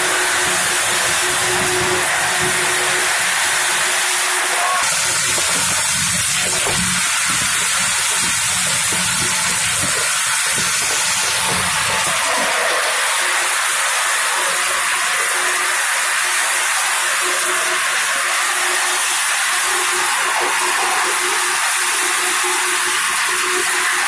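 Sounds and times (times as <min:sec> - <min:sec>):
popcorn machine hissing: 0:00.0 - 0:24.0.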